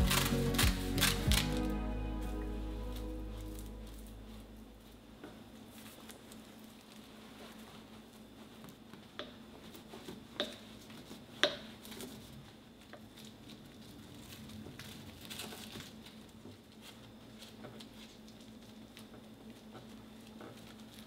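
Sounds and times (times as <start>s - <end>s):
rice pressed on laver sheets: 0.0s - 21.0s
soft rustle: 0.0s - 21.0s.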